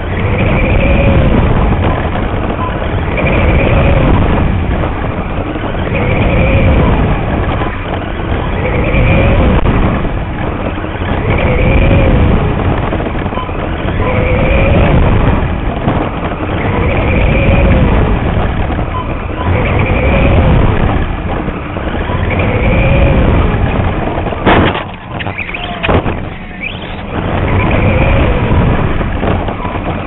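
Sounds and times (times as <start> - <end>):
heavy rumble: 0.0 - 30.0
toy race car motor whining: 3.1 - 4.2, 5.9 - 6.9, 8.6 - 9.6, 11.2 - 12.2, 19.5 - 20.5, 22.3 - 23.3.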